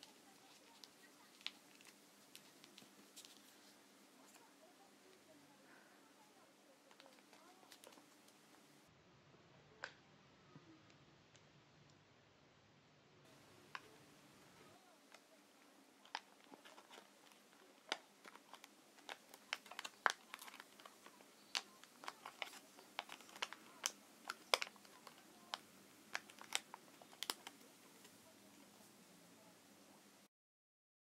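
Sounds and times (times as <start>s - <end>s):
paper crinkling: 0.0s - 8.8s, 14.6s - 29.0s.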